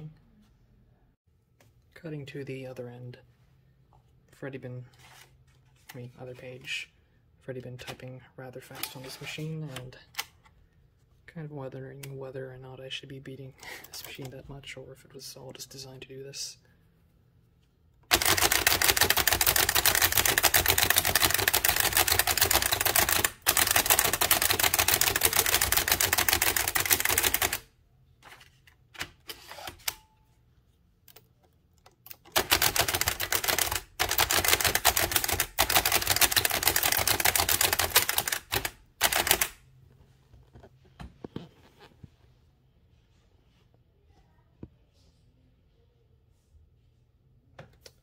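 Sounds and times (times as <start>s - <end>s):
typewriter keystrokes clattering: 18.1s - 27.6s, 32.1s - 39.6s.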